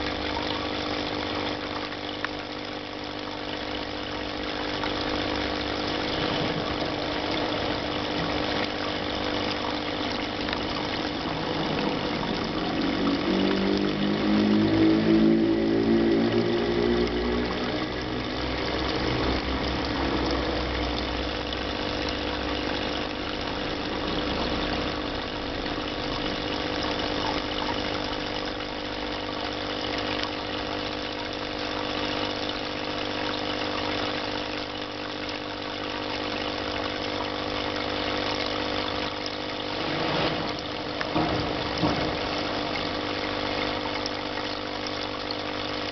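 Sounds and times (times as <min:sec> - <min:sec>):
steady machine hum: 0:00.0 - 0:45.9
engine-like sound sweeping in pitch: 0:11.3 - 0:21.0.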